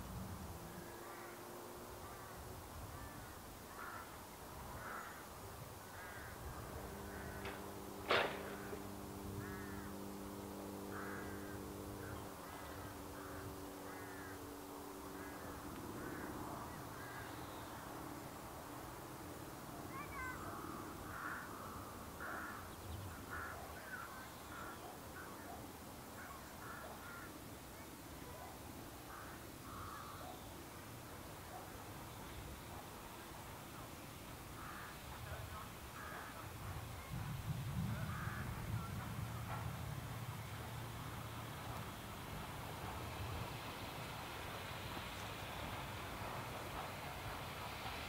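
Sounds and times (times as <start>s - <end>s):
crows cawing: 0.8s - 17.6s, 19.9s - 25.4s, 26.2s - 27.4s, 29.1s - 30.4s, 34.6s - 36.6s, 38.0s - 38.9s
low hum of several tones: 5.8s - 25.3s.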